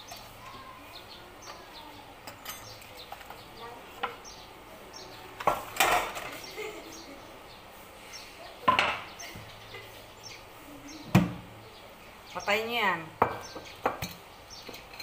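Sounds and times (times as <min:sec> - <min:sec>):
kitchenware knocks and clinks: 0:05.4 - 0:06.4, 0:08.7 - 0:09.1, 0:13.2 - 0:15.0.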